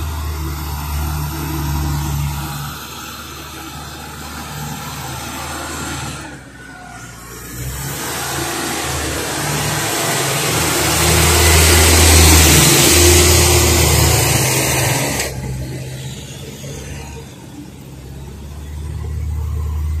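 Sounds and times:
truck engine droning: 0.0s - 20.0s.

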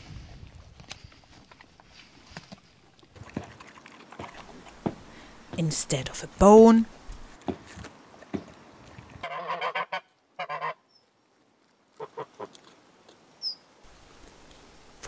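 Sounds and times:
poultry honking calls: 9.2s - 10.8s, 12.0s - 12.5s.

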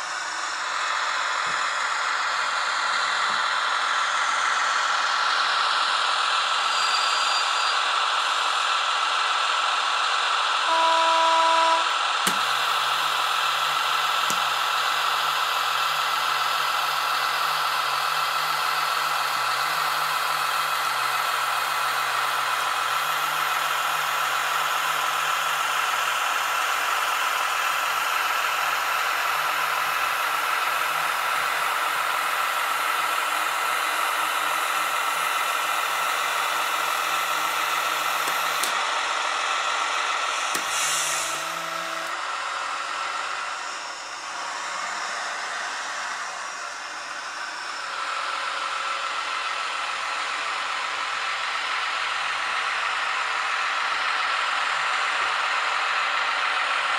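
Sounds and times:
diesel engine sound: 0.0s - 56.9s
model motor whine: 9.7s - 56.9s
model train horn toot: 10.6s - 13.0s, 40.5s - 42.2s.

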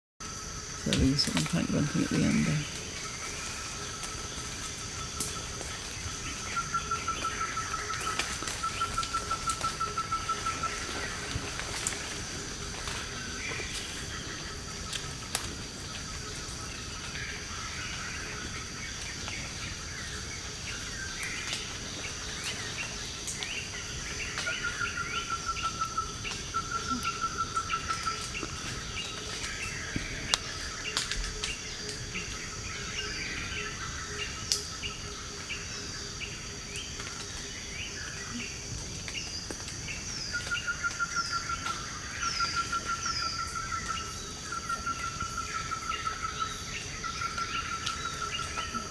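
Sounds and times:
insect drone: 0.2s - 48.9s.

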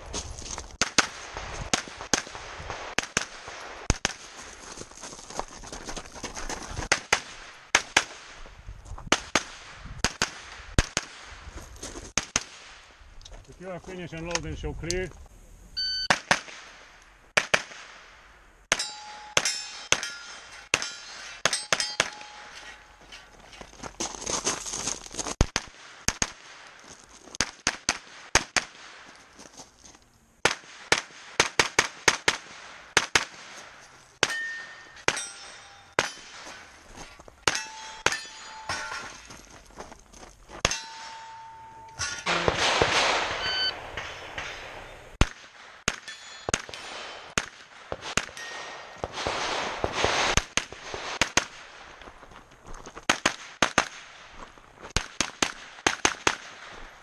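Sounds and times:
carbine gunshots: 16.1s - 16.8s, 17.4s - 18.1s, 40.6s - 51.8s, 55.0s - 56.8s
steel targets ringing clang: 18.7s - 23.6s, 34.2s - 36.8s, 37.4s - 39.4s, 40.6s - 45.0s, 45.9s - 47.0s, 48.3s - 49.0s.

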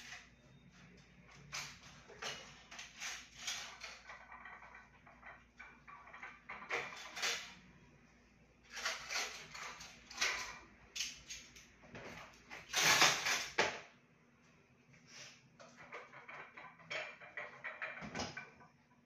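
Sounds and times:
knocks and rattles in cabinet: 15.7s - 18.8s.

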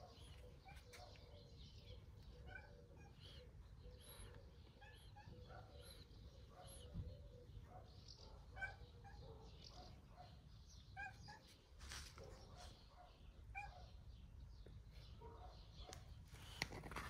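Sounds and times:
soft rustle: 11.5s - 12.8s.

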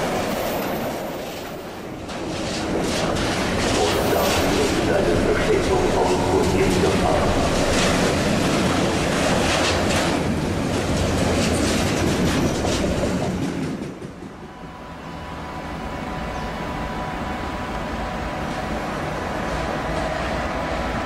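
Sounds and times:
freight train rumbling past: 0.0s - 21.0s
wheels clicking over rail joints: 0.8s - 14.3s.

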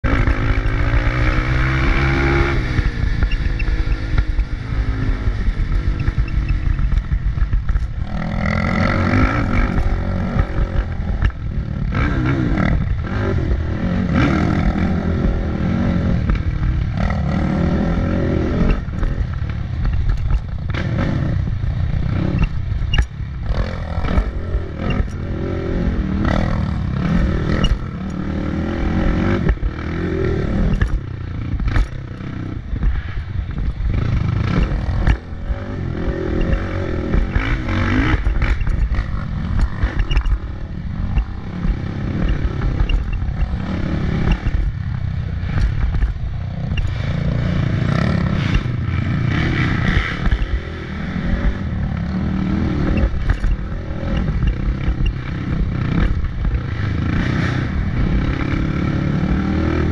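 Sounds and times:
motorcycle engine revving: 0.0s - 59.9s
knocks and clatter: 18.4s - 25.2s, 26.3s - 58.6s.

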